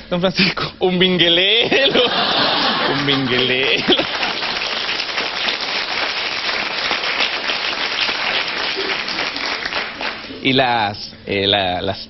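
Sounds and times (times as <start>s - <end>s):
audience applauding: 2.2s - 10.5s.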